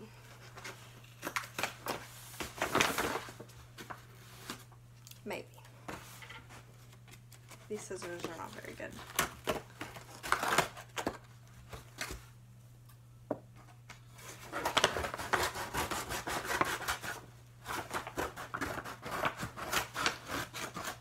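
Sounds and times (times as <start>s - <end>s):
scissors cutting paper: 14.5s - 21.0s.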